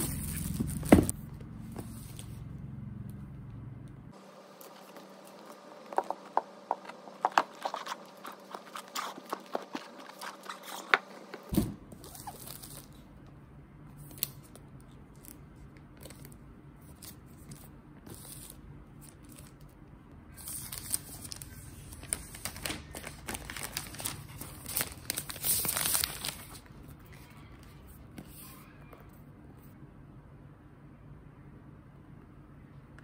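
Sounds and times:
paper wrap rustling: 0.0 - 2.4, 4.2 - 13.1, 20.3 - 27.7.

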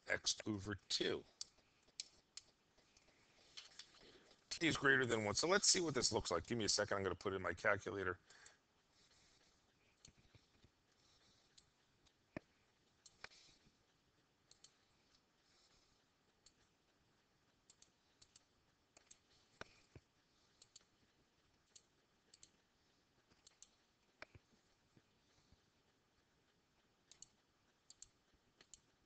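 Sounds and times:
computer mouse clicks: 1.3 - 4.4, 9.9 - 13.6, 14.4 - 15.2, 16.3 - 16.7, 17.6 - 24.5, 27.0 - 29.0.

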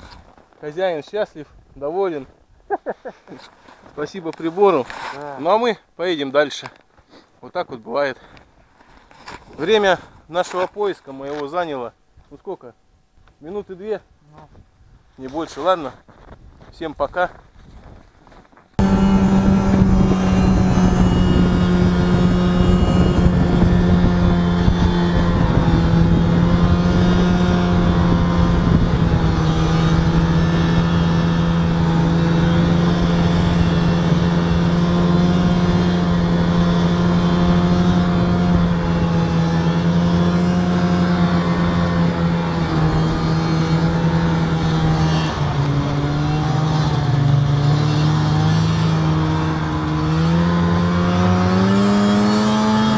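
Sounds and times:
snowmobile engine running: 18.8 - 52.9.

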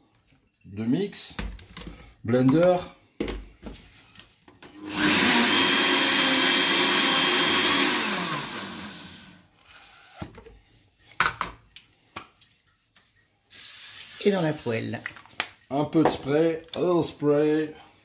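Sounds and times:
blender motor running: 4.7 - 10.2.

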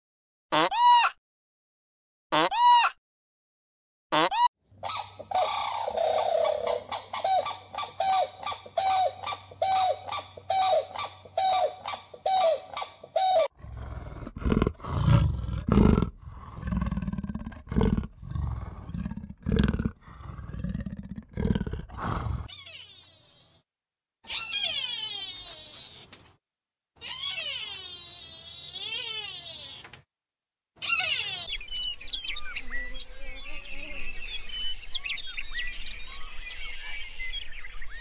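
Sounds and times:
animal deep roaring calls: 13.4 - 22.5.

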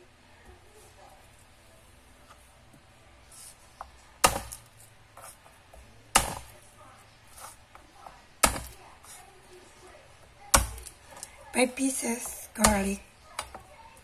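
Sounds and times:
knife chopping on plastic board: 3.8 - 6.6, 7.3 - 9.2, 10.2 - 11.3, 12.1 - 13.7.

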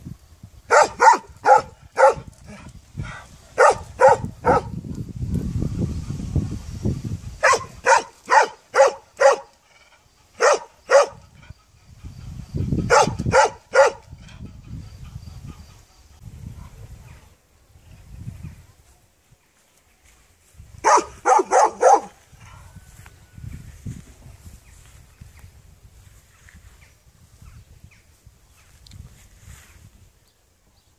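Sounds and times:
dog barking: 0.7 - 2.3, 3.6 - 4.8, 7.4 - 9.5, 10.4 - 11.2, 12.9 - 14.1, 20.8 - 22.6.

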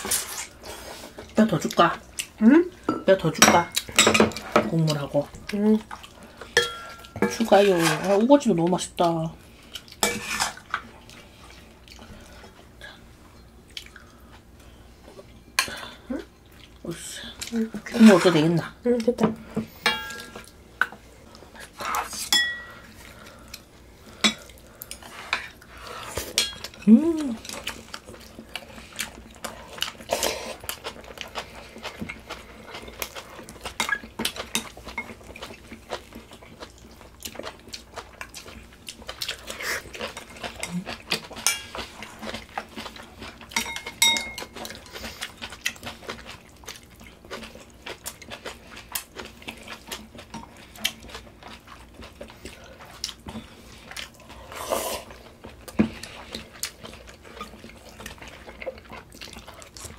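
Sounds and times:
cutlery clinking against bowls: 2.9 - 4.7, 6.6 - 8.1, 10.0 - 10.8, 19.8 - 20.5, 22.2 - 22.8, 26.3 - 26.9, 33.8 - 35.2, 40.1 - 42.4, 43.5 - 44.7
chewing: 9.0 - 13.0, 13.6 - 15.3, 22.8 - 59.9
slurping: 54.1 - 55.2.

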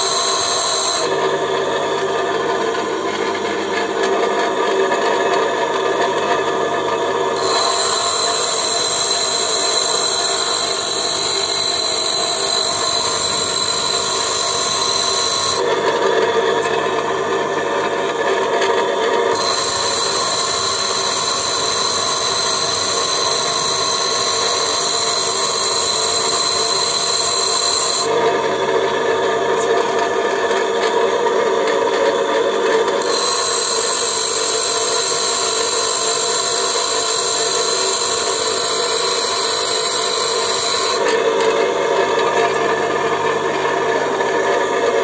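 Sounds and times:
steel grinding on a wheel: 0.0 - 1.2, 7.3 - 15.7, 19.3 - 28.3, 32.9 - 41.6
bench grinder motor hum: 0.0 - 45.0.

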